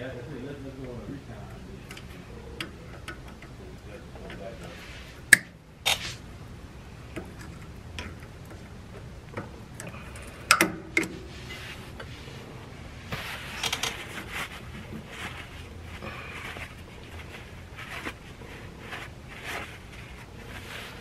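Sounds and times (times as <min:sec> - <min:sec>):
cloth rag wiping metal: 0:04.1 - 0:05.3, 0:11.2 - 0:21.0.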